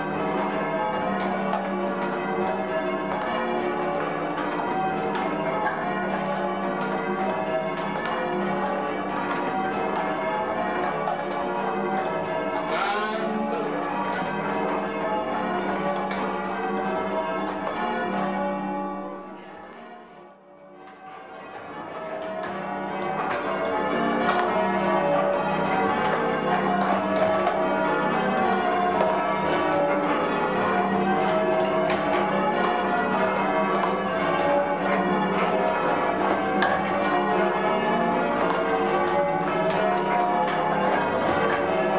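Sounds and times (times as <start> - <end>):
church bells ringing: 0.0 - 41.9.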